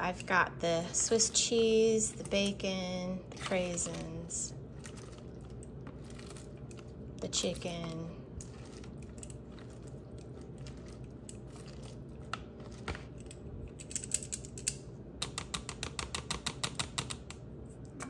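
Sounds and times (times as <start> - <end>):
lettuce rustling: 3.3 - 13.2.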